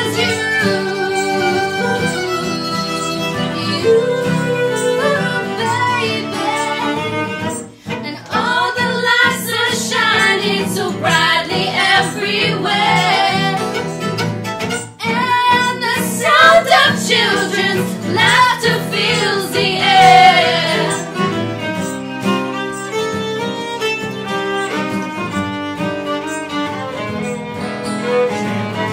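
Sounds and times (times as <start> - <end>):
voices singing together: 0.0 - 14.0, 15.1 - 21.5
strummed acoustic guitar: 0.0 - 28.9
violin: 0.0 - 28.9.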